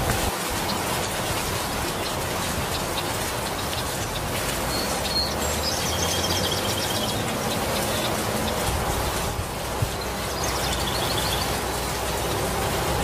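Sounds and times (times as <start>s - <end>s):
heavy rain on leaves: 0.0s - 13.0s
small bird chirping: 3.6s - 8.6s, 10.0s - 11.9s.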